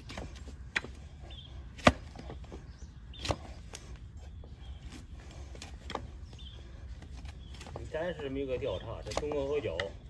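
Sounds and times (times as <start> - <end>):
blade chopping onto wooden block: 1.7 - 2.4.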